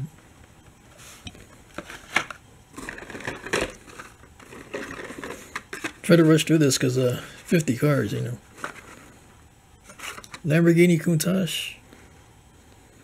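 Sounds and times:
plastic blister packs crinkling: 1.7 - 6.9.

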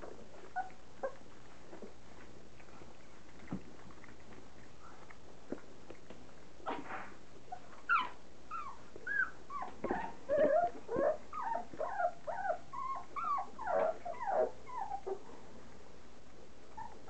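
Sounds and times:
puppies whining: 0.0 - 1.8, 7.5 - 15.2, 16.7 - 17.0.

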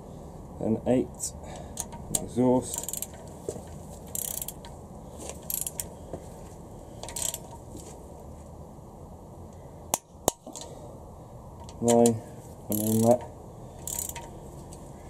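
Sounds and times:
torque wrench clicks: 1.8 - 3.2, 4.1 - 4.8, 5.4 - 5.9, 7.0 - 7.6, 11.6 - 14.3.

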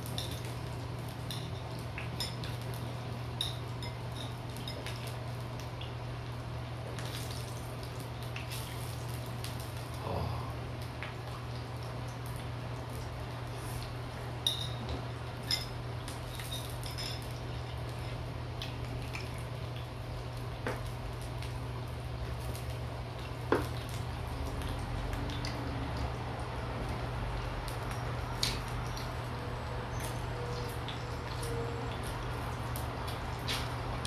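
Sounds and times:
steady low hum: 0.0 - 34.0
utensils clinking against dishes: 14.4 - 17.4
chewing meat: 30.0 - 34.0.

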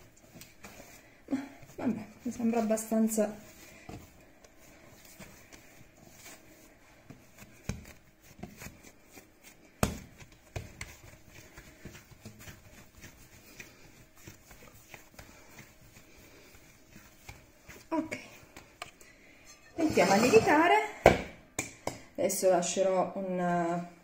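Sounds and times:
dough patting on countertop: 1.6 - 19.0.

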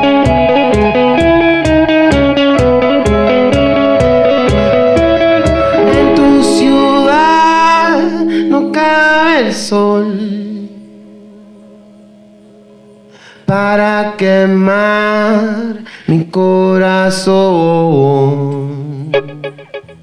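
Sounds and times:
electric guitar: 0.0 - 15.9, 18.0 - 20.0
faint low held note: 5.6 - 13.2
man singing held note: 5.7 - 11.1.

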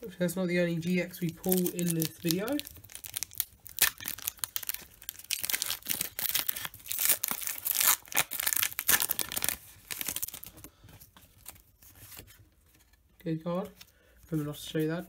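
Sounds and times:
cards rustling: 0.8 - 15.0
foil wrapper tearing and crinkling: 1.1 - 10.7.

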